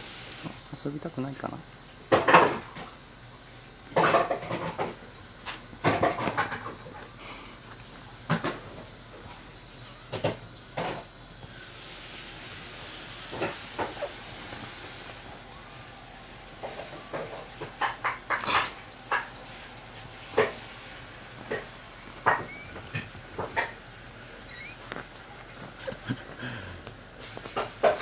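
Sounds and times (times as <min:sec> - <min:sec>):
steady low hiss: 0:00.0 - 0:28.0
cats rustling and scuffling: 0:24.8 - 0:28.0.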